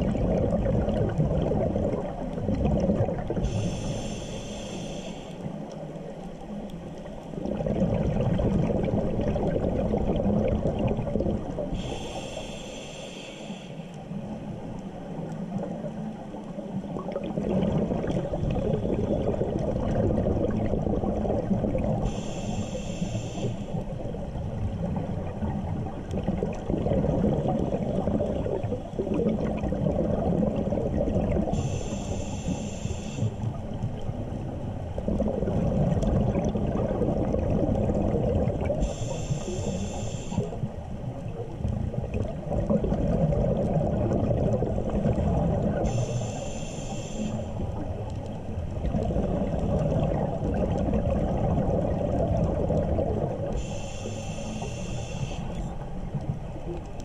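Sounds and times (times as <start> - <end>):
bubbling exhaled air: 0.0 - 5.5, 7.3 - 13.8, 16.9 - 34.3, 35.0 - 48.1, 48.7 - 56.3
regulator hissing inhale: 3.4 - 5.7, 11.7 - 14.1, 22.0 - 23.8, 31.5 - 33.5, 38.8 - 40.7, 45.8 - 47.8, 53.5 - 55.8.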